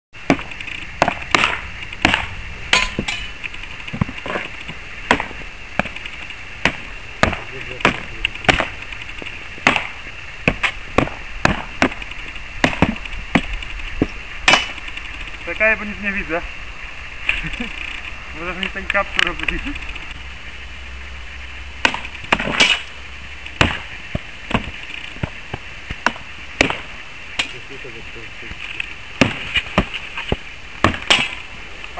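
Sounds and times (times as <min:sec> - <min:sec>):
sword striking shields: 0:00.3 - 0:03.4, 0:05.1 - 0:06.0, 0:06.6 - 0:08.7, 0:09.6 - 0:12.0, 0:21.8 - 0:22.9, 0:30.8 - 0:31.4.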